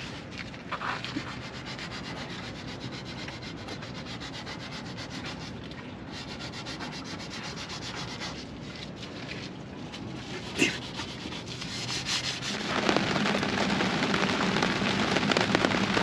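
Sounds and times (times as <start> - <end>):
sandpaper rubbing on wood: 1.0 - 5.6, 6.2 - 8.4, 10.4 - 12.6.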